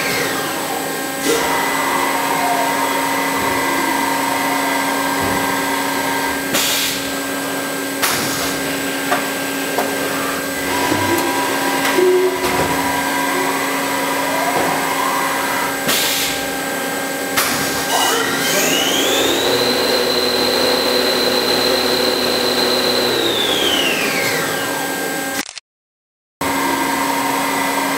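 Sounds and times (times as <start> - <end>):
high spindle whine: 0.0 - 8.0, 8.6 - 25.3
lathe machine hum: 0.0 - 25.3, 26.4 - 27.9
machine clunks: 10.6 - 13.1.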